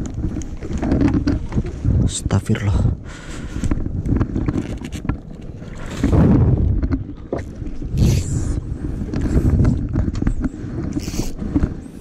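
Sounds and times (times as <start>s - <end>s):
wind noise: 0.0s - 12.0s.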